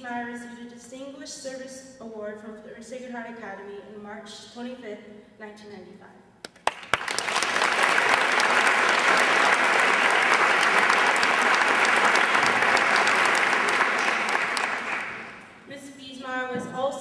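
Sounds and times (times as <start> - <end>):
audience applauding: 6.6 - 15.5.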